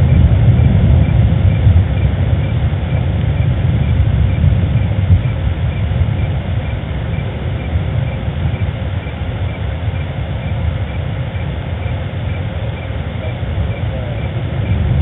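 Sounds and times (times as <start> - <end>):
faint high chirp: 0.0 - 15.0
low outdoor rumble: 0.0 - 15.0.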